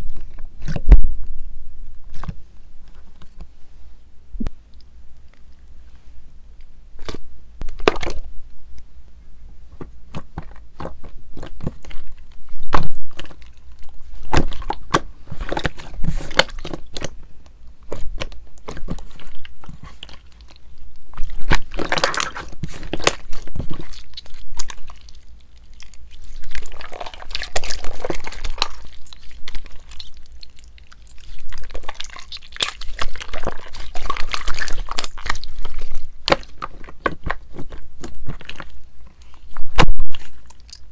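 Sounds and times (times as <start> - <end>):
slime squishing and popping: 7.0 - 8.3, 10.1 - 17.2, 17.8 - 40.9.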